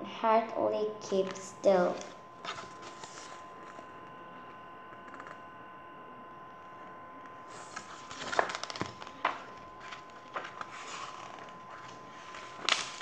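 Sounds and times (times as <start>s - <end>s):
book pages rustling: 2.0s - 3.9s, 7.5s - 13.0s.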